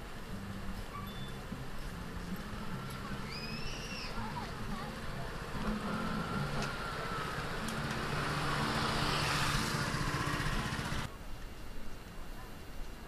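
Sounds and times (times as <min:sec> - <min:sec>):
street ambience: 0:00.0 - 0:13.0
vehicle passing close by: 0:04.8 - 0:11.1.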